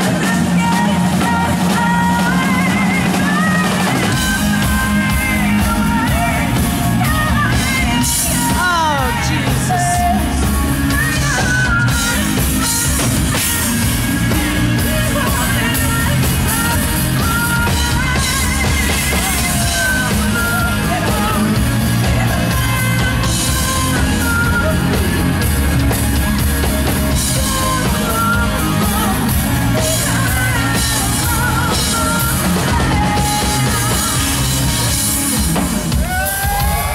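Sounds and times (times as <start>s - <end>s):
live rock band: 0.0s - 36.9s
woman singing lead: 0.0s - 36.9s.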